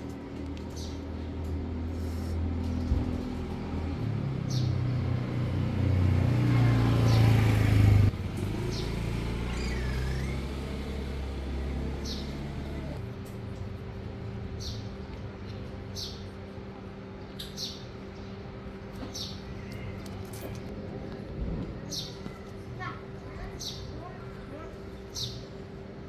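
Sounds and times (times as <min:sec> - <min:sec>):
motor vehicle engine hum: 0:00.0 - 0:26.0.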